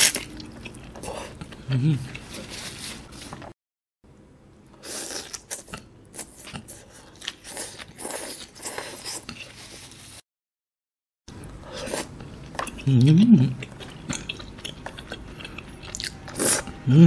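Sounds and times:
biting and chewing food: 12.0s - 16.8s.

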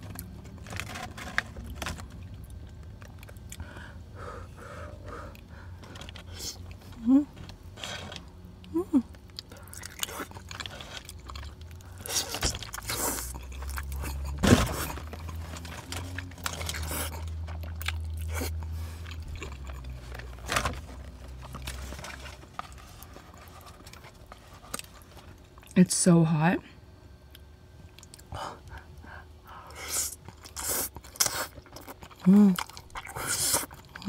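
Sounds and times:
wet chewing and slurping: 9.2s - 25.8s, 29.5s - 34.0s.

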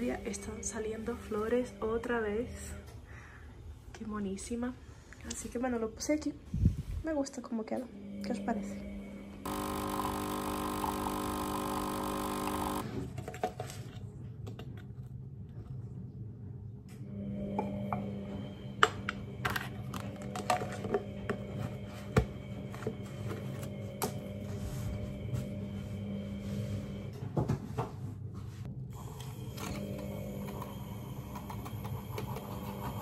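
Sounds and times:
low hum: 7.7s - 12.8s, 15.2s - 27.4s
steady drone: 17.0s - 27.2s.

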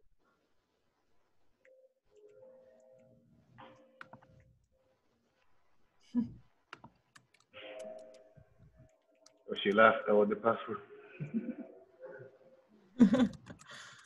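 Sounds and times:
keyboard keys clicking: 6.7s - 9.9s, 13.2s - 14.0s.

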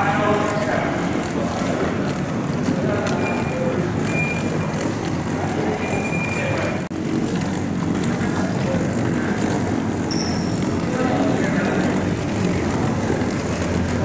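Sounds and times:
suitcase wheels rumbling on floor: 0.0s - 14.0s
faint high squeak: 10.1s - 10.6s.

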